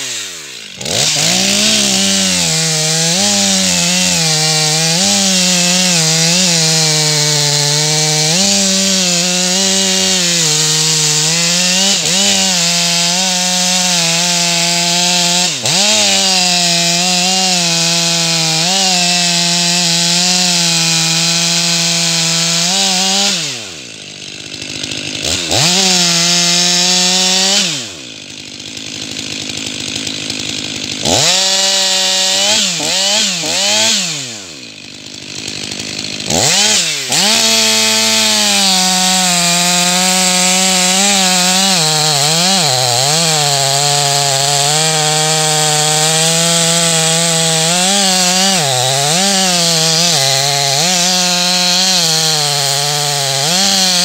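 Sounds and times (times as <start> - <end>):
chainsaw cutting wood: 0.0 - 54.0.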